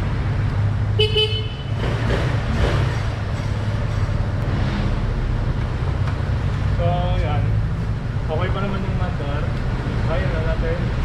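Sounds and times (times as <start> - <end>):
scooter engine rumbling: 0.0 - 7.0.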